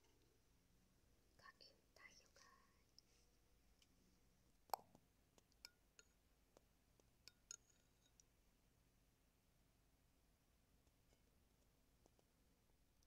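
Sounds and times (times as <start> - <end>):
metal spoon clinking on dishes: 7.3 - 8.2.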